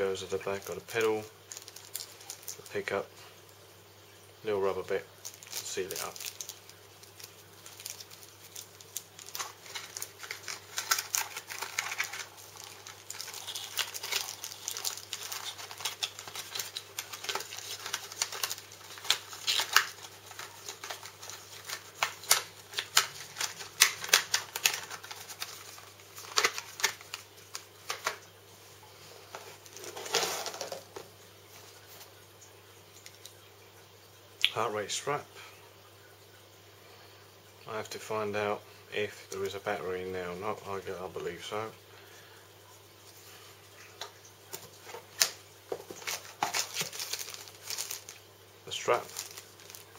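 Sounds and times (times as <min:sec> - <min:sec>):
plastic packaging crinkling: 0:00.2 - 0:03.0, 0:04.9 - 0:28.3, 0:29.2 - 0:31.2, 0:44.5 - 0:49.9.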